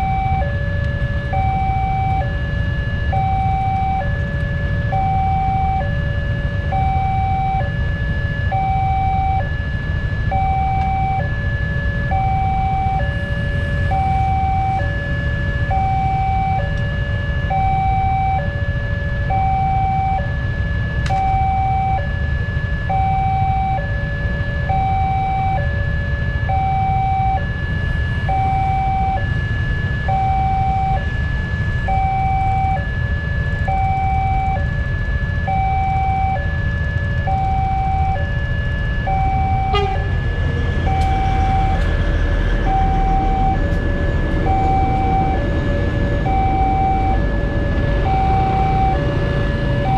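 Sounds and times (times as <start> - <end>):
low rumble of traffic: 0.0 - 49.9
two-tone level-crossing alarm: 0.0 - 49.9.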